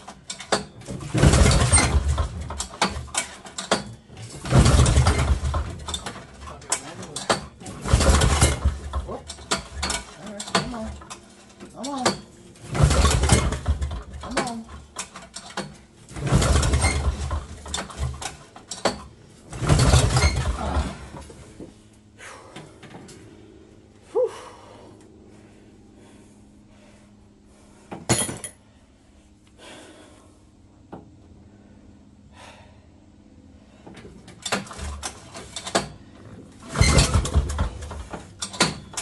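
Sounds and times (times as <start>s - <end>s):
recoil starter pulls cranking engine: 0.0s - 21.4s, 34.2s - 39.0s
short clanks: 0.0s - 21.8s, 33.8s - 39.0s.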